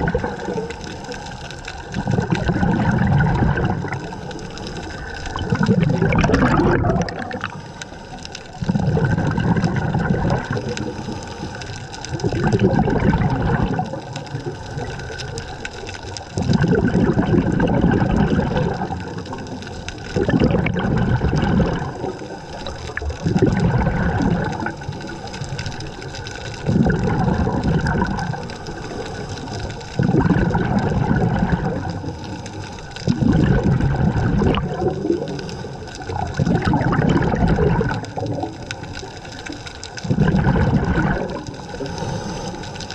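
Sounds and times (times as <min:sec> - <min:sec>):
bubbles gurgling: 0:00.0 - 0:42.9
diver breathing through regulator: 0:41.4 - 0:42.9.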